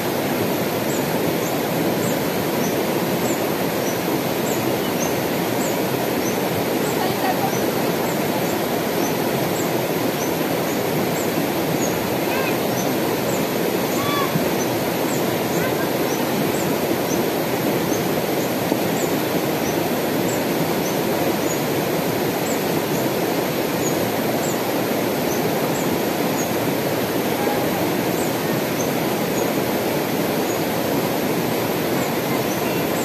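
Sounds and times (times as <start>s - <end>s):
river rushing over rocks: 0.0s - 33.0s.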